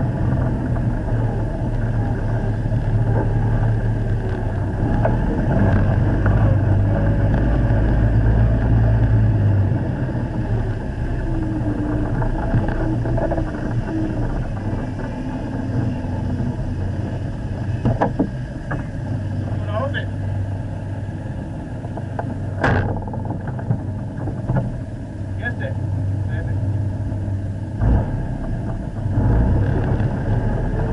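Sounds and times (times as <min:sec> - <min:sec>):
vehicle engine running: 0:00.0 - 0:30.9.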